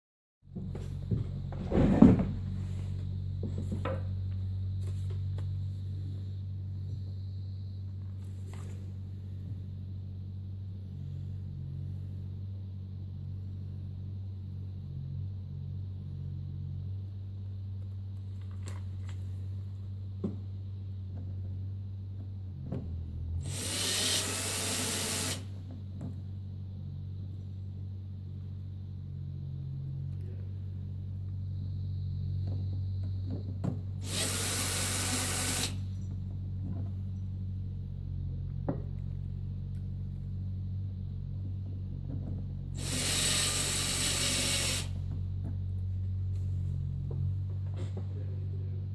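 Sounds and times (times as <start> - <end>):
steady low hum: 0.4 - 48.9
power screwdriver running: 23.4 - 25.5, 34.0 - 35.8, 42.8 - 44.9.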